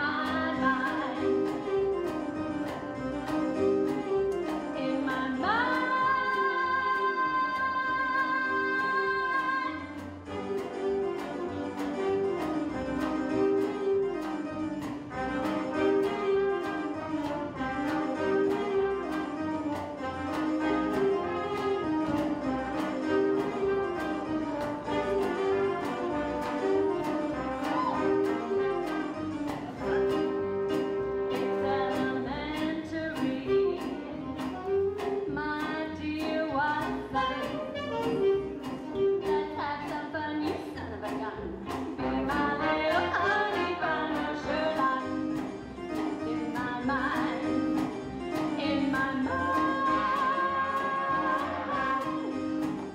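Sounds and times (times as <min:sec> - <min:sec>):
bowed strings melody: 0:00.0 - 0:52.9
orchestra playing dance music: 0:00.0 - 0:52.9
upright bass: 0:00.0 - 0:52.9.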